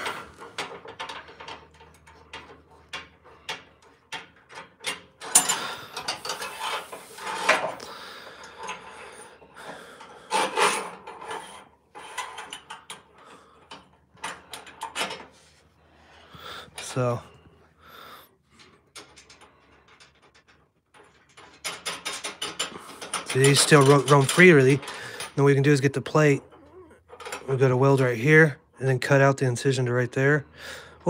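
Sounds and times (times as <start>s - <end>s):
metal parts clinking: 0.0s - 15.3s, 18.6s - 28.0s
metal bar scraping in sleeves: 5.2s - 7.8s, 10.2s - 12.7s.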